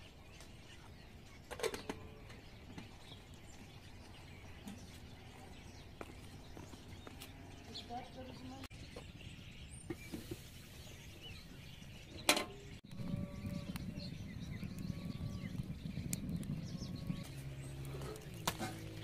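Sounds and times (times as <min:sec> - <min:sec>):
wood fire crackling: 0:12.8 - 0:19.0.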